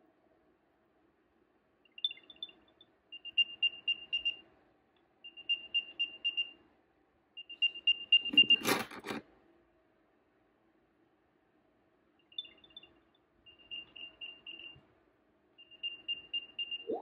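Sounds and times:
quick high beeps: 1.9 - 4.4, 12.3 - 14.8
keys clattering: 8.3 - 9.2.

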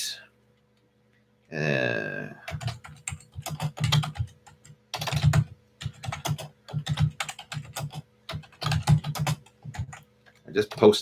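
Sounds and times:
typing on computer keyboard: 2.5 - 11.0.

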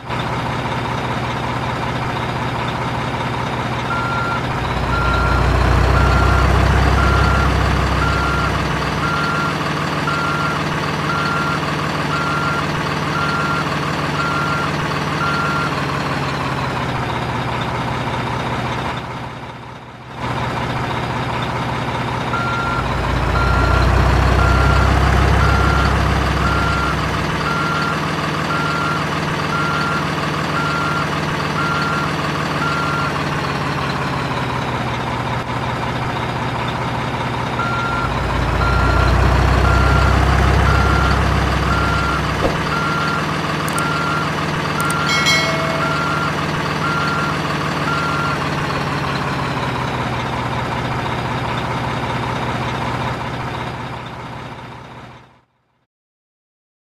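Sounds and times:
truck engine running: 0.0 - 55.2
reversing alarm beeping: 3.9 - 15.8, 22.3 - 30.0, 30.6 - 33.2, 37.6 - 48.4.

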